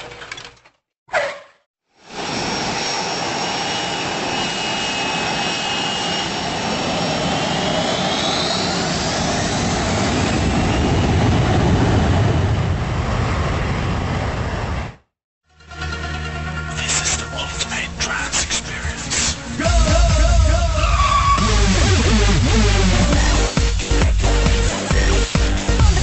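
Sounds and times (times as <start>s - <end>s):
jet engine rush and whine: 2.0s - 15.1s
low rumble: 19.6s - 23.6s.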